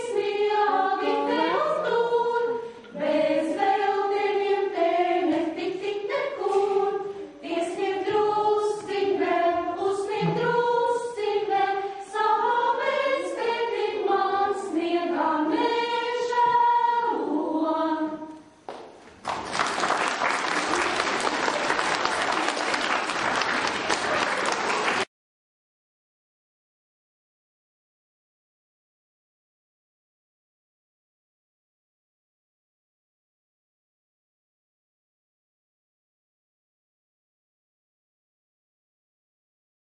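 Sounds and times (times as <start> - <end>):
women's voices singing together: 0.0 - 18.4.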